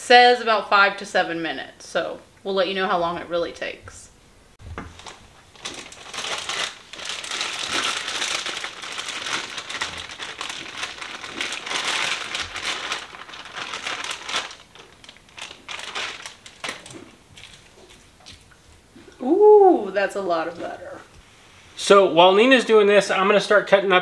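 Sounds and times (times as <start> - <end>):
plastic bag crinkling: 4.9 - 18.0.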